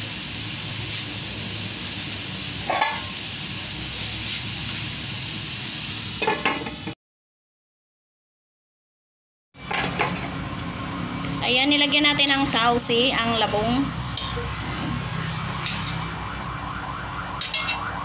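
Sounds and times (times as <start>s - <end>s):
food sizzling in a wok: 0.0s - 7.0s, 9.6s - 18.0s
metal lid clattering: 2.7s - 3.1s, 6.2s - 6.8s, 17.4s - 17.8s.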